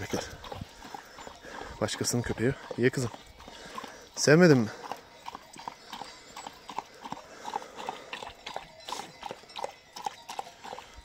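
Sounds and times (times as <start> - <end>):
dog lapping water: 0.0 - 11.0.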